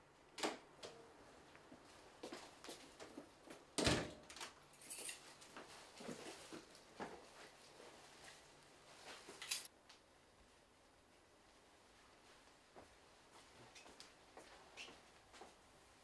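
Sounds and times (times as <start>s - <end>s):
faint footsteps: 1.4s - 3.7s, 11.5s - 16.0s.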